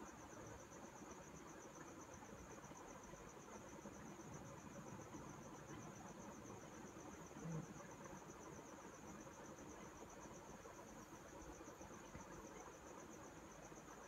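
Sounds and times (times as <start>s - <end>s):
insect chirping faintly: 0.0s - 14.0s.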